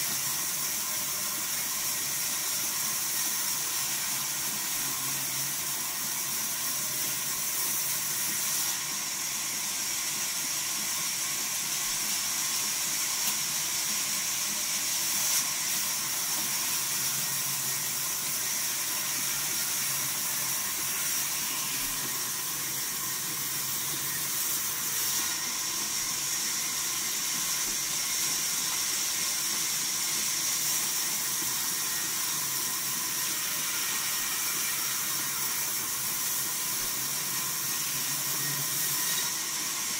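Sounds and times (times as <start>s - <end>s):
band saw cutting wood: 11.4s - 39.9s.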